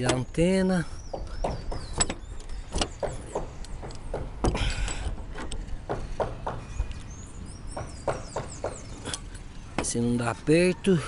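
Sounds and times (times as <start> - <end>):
tools knocking on a roof: 1.1 - 5.2, 5.8 - 6.9, 7.8 - 8.9.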